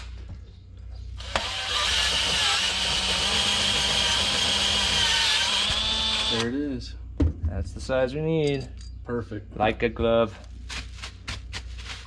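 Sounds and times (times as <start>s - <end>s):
drill cutting metal whine: 1.2s - 6.5s.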